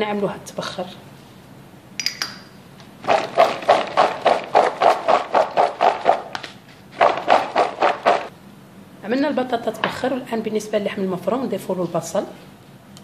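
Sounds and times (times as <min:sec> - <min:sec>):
potato cubes rattling in plastic bowl: 0:07.0 - 0:08.3.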